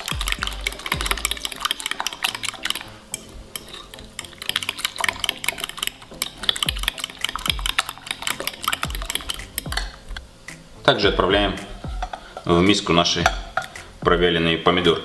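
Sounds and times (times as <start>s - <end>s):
fork whisking in glass bowl: 0.0s - 10.0s.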